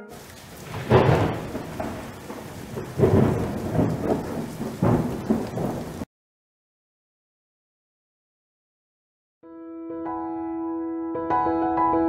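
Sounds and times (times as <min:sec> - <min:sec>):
steady rain hiss: 0:00.0 - 0:06.1
thunder rolling: 0:00.1 - 0:06.1.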